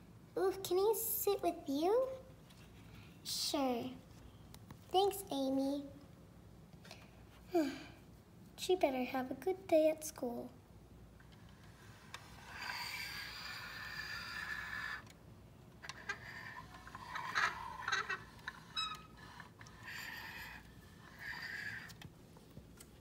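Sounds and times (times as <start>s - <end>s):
toy vehicle rolling on floor: 11.2s - 22.1s.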